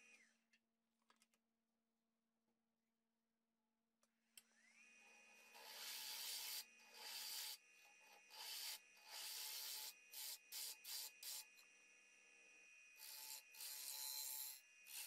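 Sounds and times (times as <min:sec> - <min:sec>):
lathe motor whine: 0:04.5 - 0:12.0, 0:13.0 - 0:15.0
sandpaper hissing on spinning wood: 0:05.6 - 0:07.6, 0:08.3 - 0:11.6.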